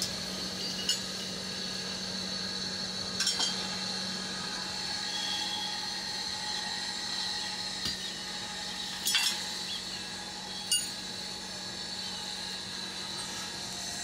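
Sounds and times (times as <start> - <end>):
forge fire hum and hiss: 0.0 - 14.0
iron bars clinking: 9.0 - 9.4.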